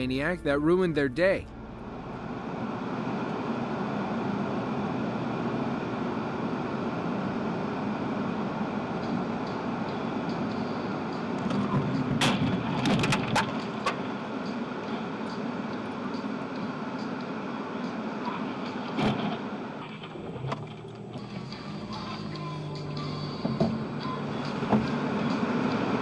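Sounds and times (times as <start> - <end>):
car road and engine noise: 0.0 - 26.0
vehicles colliding with bangs: 9.0 - 15.3, 15.9 - 26.0.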